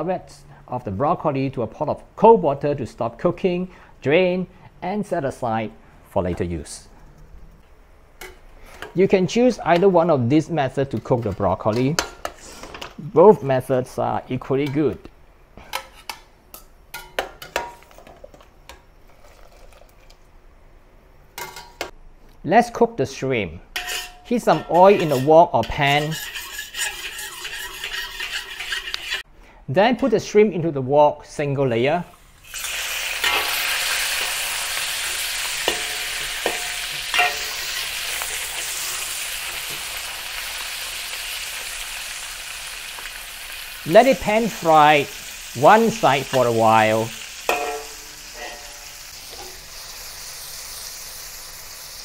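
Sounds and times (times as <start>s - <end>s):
shrimp sizzling in hot oil: 32.2s - 52.0s
metal skimmer clinking on pot: 35.6s - 37.5s, 47.5s - 48.8s.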